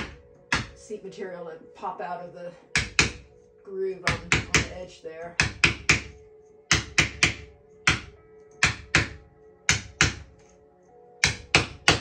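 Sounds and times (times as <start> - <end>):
wooden mallet tapping a wedge: 0.0 - 0.8, 2.8 - 3.3, 4.1 - 4.8, 5.4 - 10.3, 11.2 - 12.0
faint background music: 0.0 - 12.0.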